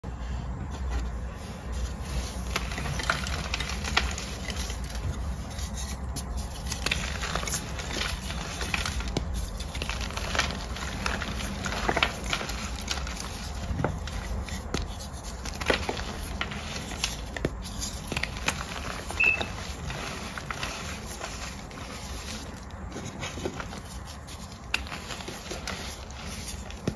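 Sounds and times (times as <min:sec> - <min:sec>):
chalk crunching and crackling: 0:00.2 - 0:26.9
chalk rubbing and scraping: 0:00.2 - 0:26.9.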